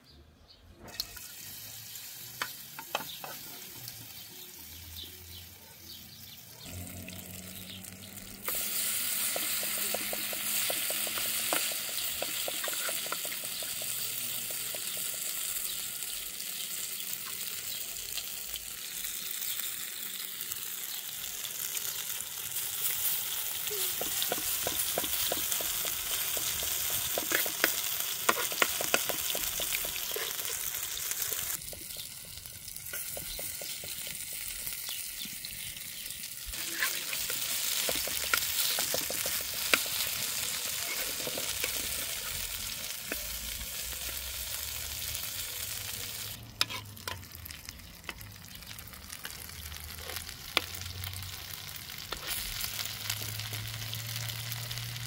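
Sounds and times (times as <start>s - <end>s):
fritters sizzling in oil: 0.8s - 55.0s
metal spoon scraping a pan: 8.4s - 14.0s, 23.9s - 32.0s, 36.6s - 42.5s, 46.6s - 47.3s.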